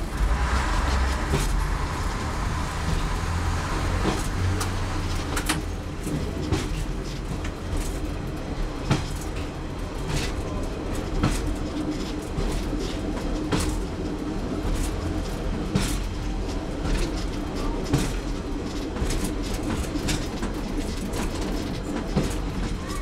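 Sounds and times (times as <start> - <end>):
train diesel engine drone: 0.0 - 23.0
wheels clicking over rail joints: 0.0 - 23.0.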